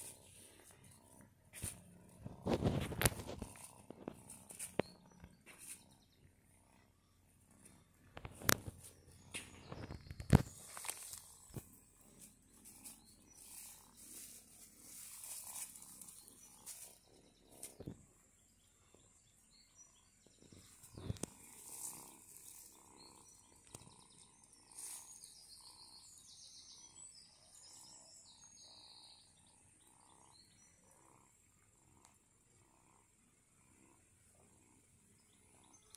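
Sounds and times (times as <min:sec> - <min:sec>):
faint high chirps: 0:00.0 - 0:31.2
faint rustling in grass: 0:10.3 - 0:17.8, 0:20.7 - 0:22.8.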